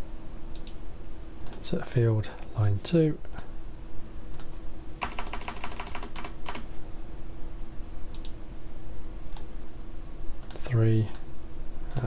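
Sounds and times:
faint steady hum: 0:00.0 - 0:12.0
computer mouse clicks: 0:00.5 - 0:00.8, 0:01.4 - 0:01.6, 0:04.3 - 0:06.6, 0:08.1 - 0:08.4, 0:09.3 - 0:09.5, 0:10.4 - 0:11.3
computer keyboard typing: 0:04.4 - 0:06.7.

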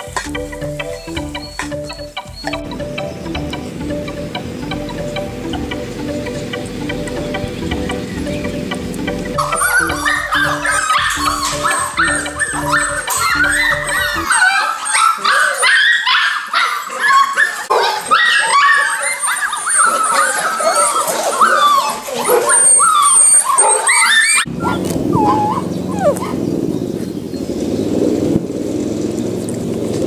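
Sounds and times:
puppies whining and yipping: 0:00.0 - 0:26.5
low outdoor rumble: 0:00.1 - 0:14.2.

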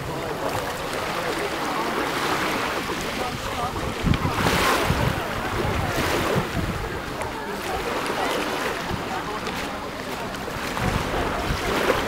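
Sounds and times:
faint voices: 0:00.0 - 0:12.0
waves on pebble shore: 0:00.0 - 0:12.0
wind buffeting microphone: 0:02.4 - 0:12.0.

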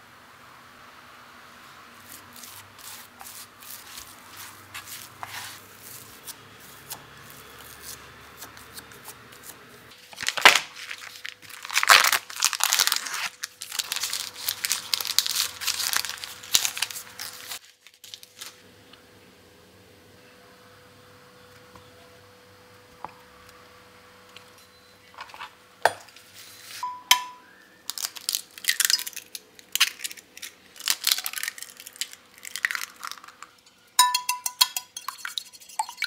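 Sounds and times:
wooden spoon scraping glass bowl: 0:02.8 - 0:06.4, 0:34.0 - 0:36.0
plastic wrapper crinkling and tearing: 0:10.0 - 0:18.6, 0:27.8 - 0:33.6.

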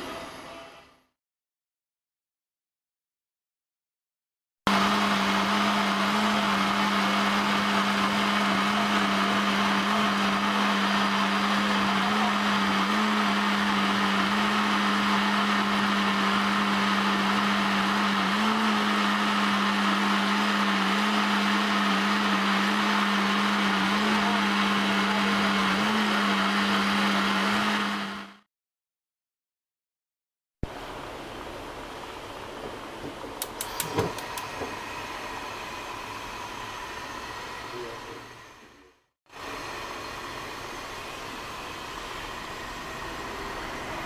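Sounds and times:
blender running: 0:04.7 - 0:28.5, 0:33.4 - 0:44.0.

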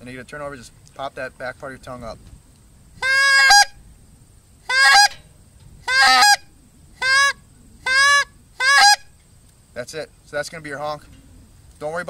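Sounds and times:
goose call honks: 0:03.0 - 0:03.8, 0:04.7 - 0:05.2, 0:05.8 - 0:09.1.

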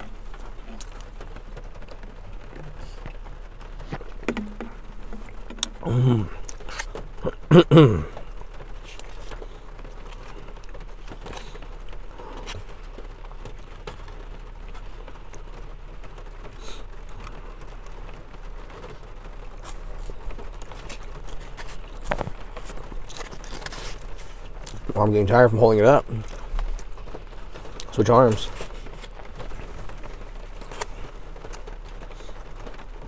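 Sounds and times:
rain pattering on car roof: 0:00.0 - 0:33.0
person humming: 0:05.6 - 0:06.5.

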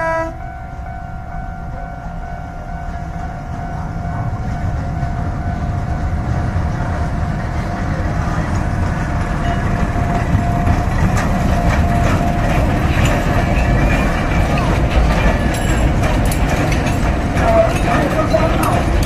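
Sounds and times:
diesel locomotive engine rumble: 0:00.0 - 0:19.0
level-crossing warning tone: 0:00.0 - 0:19.0
train wheel clicks: 0:08.4 - 0:19.0.

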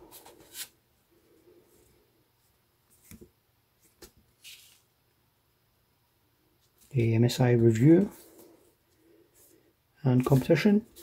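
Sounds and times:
paper rustling and sliding: 0:00.1 - 0:00.8, 0:02.9 - 0:04.9.

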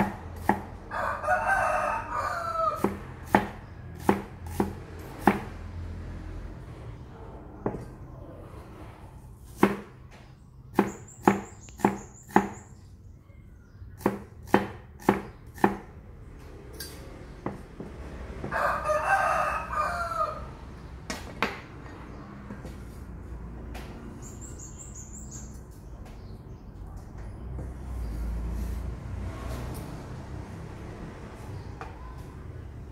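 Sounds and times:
cleaver chopping on wood: 0:00.0 - 0:00.7, 0:02.8 - 0:05.5, 0:09.6 - 0:09.9, 0:10.8 - 0:12.6, 0:14.0 - 0:15.9
rooster crowing: 0:00.8 - 0:03.0, 0:18.4 - 0:20.6.

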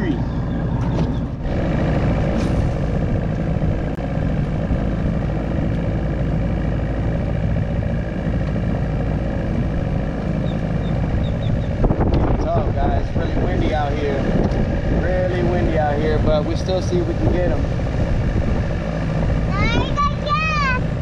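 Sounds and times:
wind buffeting microphone: 0:09.4 - 0:21.0.

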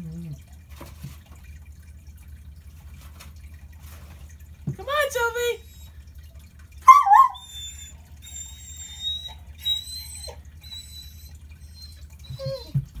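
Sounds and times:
puppy howling: 0:00.0 - 0:00.4, 0:06.8 - 0:12.8
puppy whining high-pitched: 0:00.0 - 0:00.4, 0:06.8 - 0:13.0.

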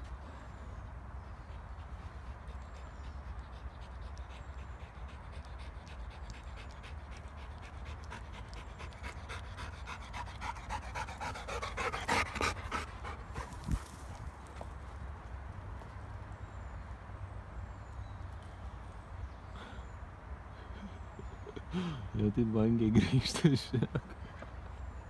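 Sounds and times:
dog panting: 0:01.3 - 0:13.8.

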